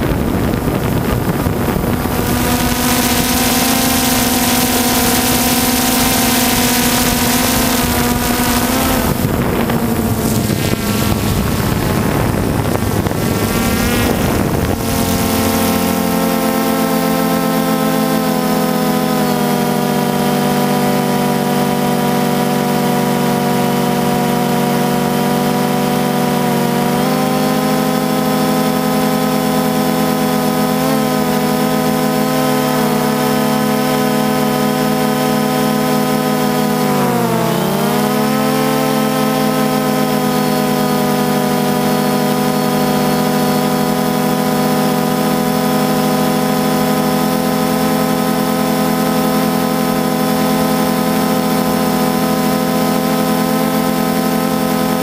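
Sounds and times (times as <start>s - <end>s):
drone motors whining: 0.0s - 55.0s.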